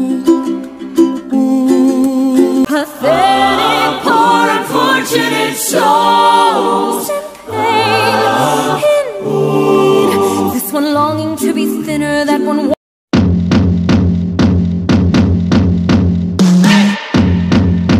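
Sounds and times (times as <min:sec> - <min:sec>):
voices singing a song: 0:01.2 - 0:12.8
low bass notes: 0:13.1 - 0:16.4.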